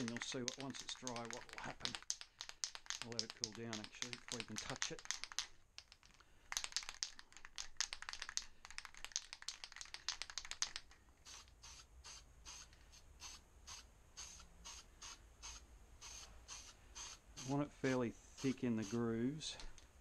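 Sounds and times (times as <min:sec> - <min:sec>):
spray can ball rattling: 0:00.0 - 0:17.6
short spray hisses: 0:11.2 - 0:17.6.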